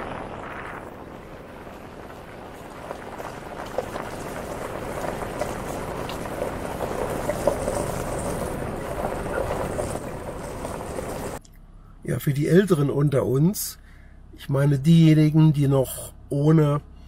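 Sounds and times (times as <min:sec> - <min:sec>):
tyres rolling over gravel: 0:00.0 - 0:11.4
engine running: 0:00.0 - 0:14.8.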